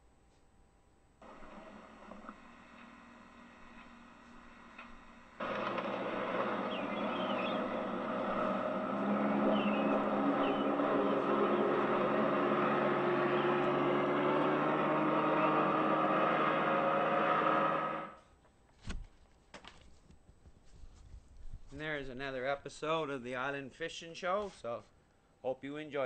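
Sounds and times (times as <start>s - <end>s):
outboard motor running: 1.2s - 18.2s.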